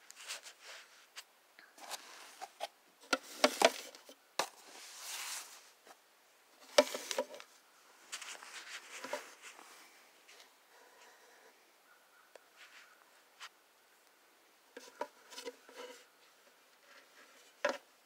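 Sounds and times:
scraping rustles: 0.0 - 1.2, 1.8 - 6.0, 6.6 - 11.4, 12.5 - 13.5, 14.8 - 17.9.

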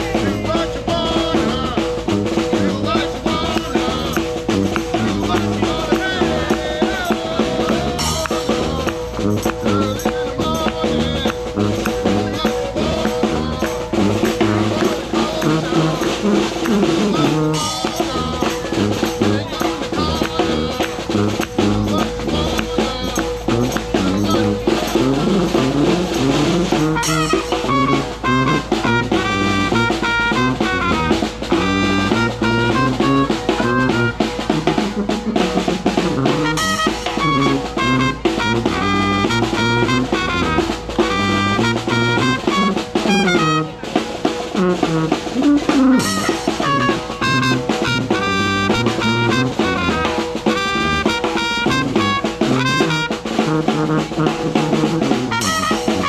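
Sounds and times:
man singing into microphone: 0.0 - 34.6
sousaphone bass line: 0.0 - 43.9, 44.6 - 56.0
snare drum groove: 0.0 - 56.0
trumpet sustained notes: 0.0 - 56.0.

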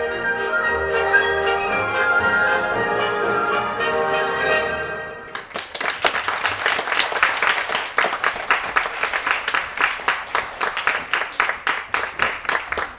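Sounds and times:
music: 0.0 - 5.4
audience applauding: 5.3 - 12.9.

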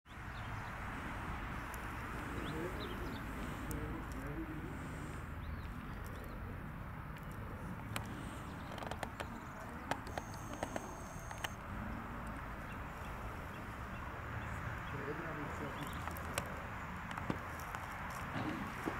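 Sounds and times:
outdoor background noise: 0.1 - 18.9
faint distant voices: 0.2 - 18.9
sharp clicks: 7.1 - 13.1.

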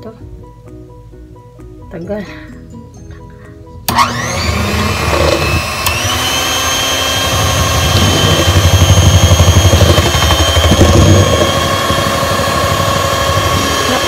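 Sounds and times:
electric hand mixer whining: 3.9 - 14.0.

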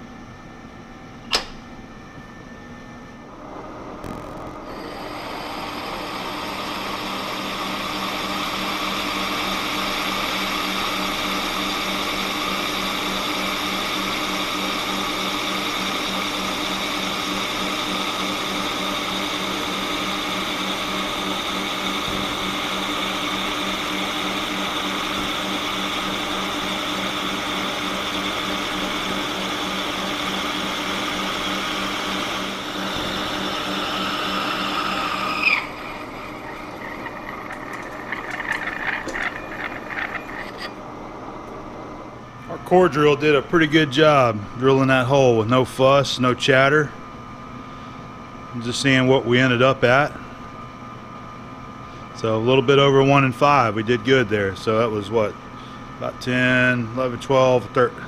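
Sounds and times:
lathe drilling whine: 2.9 - 46.0.

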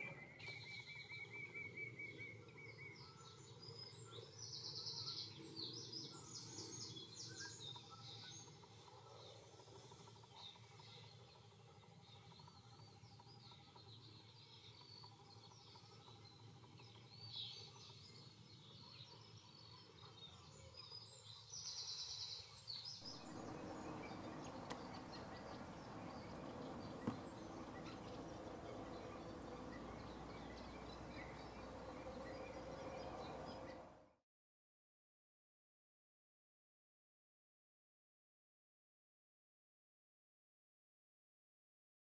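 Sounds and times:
bird trill: 0.0 - 11.6, 23.0 - 34.0
distant bird calls: 0.0 - 34.1
background hiss: 21.5 - 33.9.

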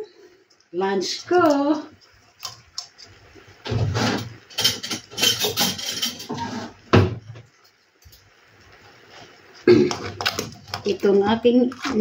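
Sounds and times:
crabs scraping on metal wok: 2.4 - 6.8, 10.2 - 12.0.

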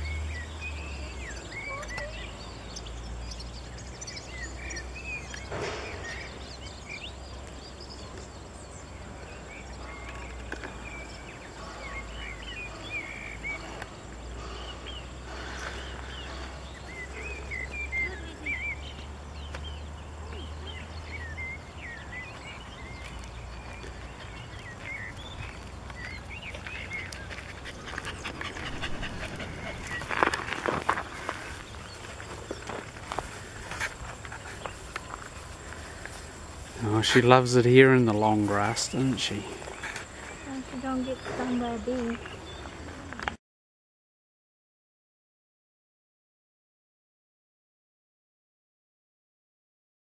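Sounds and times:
small birds chirping: 0.0 - 43.4
wind rumble on microphone: 27.7 - 31.8.

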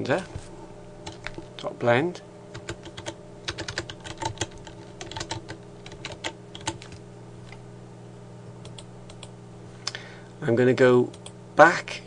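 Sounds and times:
low electrical hum: 0.0 - 12.0
keyboard typing clicks: 2.6 - 7.0, 8.6 - 9.3.

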